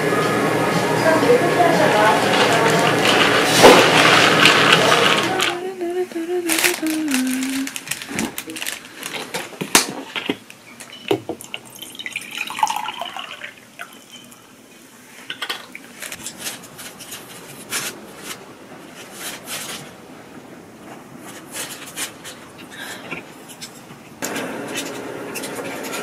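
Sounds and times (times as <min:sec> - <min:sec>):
water pouring into a glass mug: 0:11.4 - 0:14.4.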